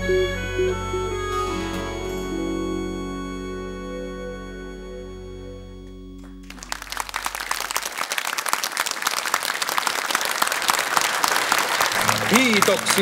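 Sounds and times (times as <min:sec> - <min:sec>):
held keyboard chord: 0:00.0 - 0:07.4
audience applause: 0:06.2 - 0:13.0.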